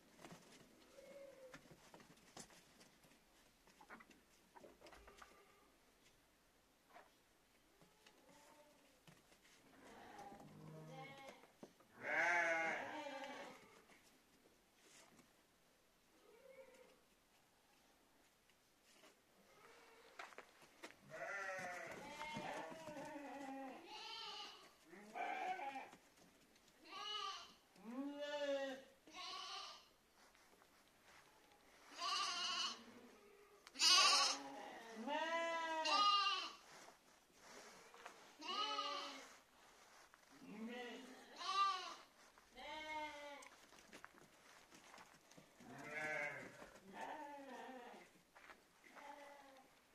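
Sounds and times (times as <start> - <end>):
sheep bleating: 12.0 - 13.6, 21.1 - 26.0, 26.8 - 29.9, 31.9 - 32.9, 33.7 - 36.6, 38.4 - 39.3, 40.5 - 43.5, 45.6 - 48.1.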